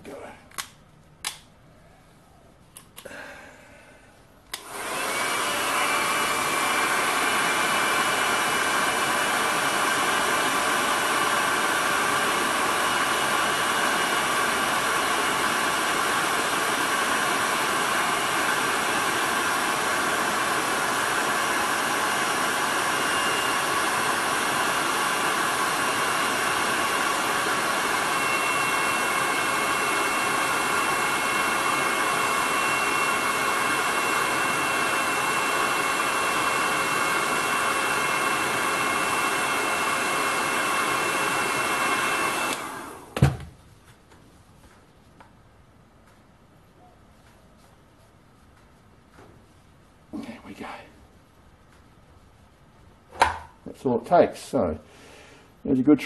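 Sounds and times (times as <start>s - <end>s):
hairdryer running: 4.5s - 43.5s, 53.1s - 53.8s.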